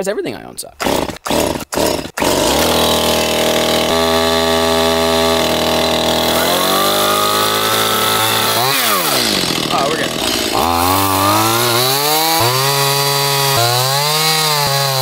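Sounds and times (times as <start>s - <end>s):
starter cord tugs: 0.8s - 13.6s
chainsaw engine idling and revving: 0.8s - 15.0s.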